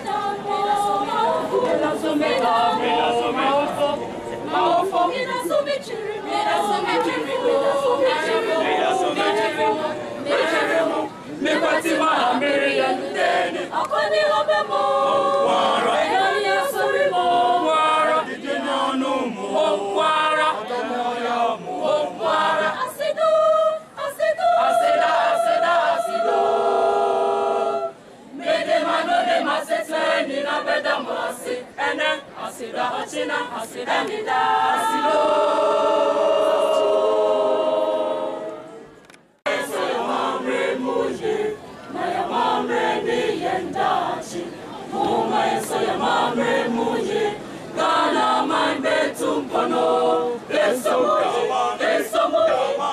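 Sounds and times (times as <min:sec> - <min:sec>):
children's choir singing: 0:00.0 - 0:38.8, 0:39.4 - 0:52.9.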